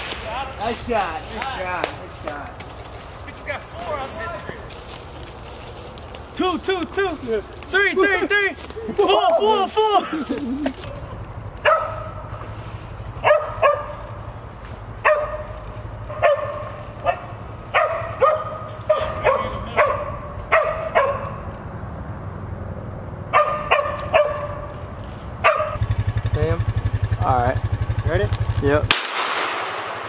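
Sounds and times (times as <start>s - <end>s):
dog barking sharply: 11.6s - 12.2s, 13.2s - 14.1s, 15.0s - 21.4s, 23.3s - 24.7s, 25.4s - 25.8s.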